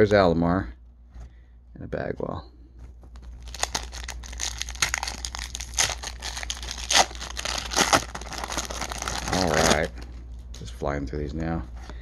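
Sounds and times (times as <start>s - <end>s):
wrapper crinkling and tearing: 3.0s - 10.1s.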